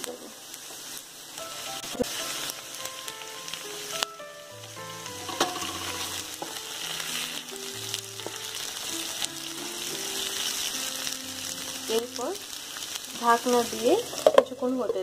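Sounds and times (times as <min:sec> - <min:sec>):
soft background music: 0:00.0 - 0:15.0
vegetables sizzling in oil: 0:00.0 - 0:15.0
wooden spatula knocking pan: 0:05.2 - 0:06.6, 0:14.1 - 0:15.0.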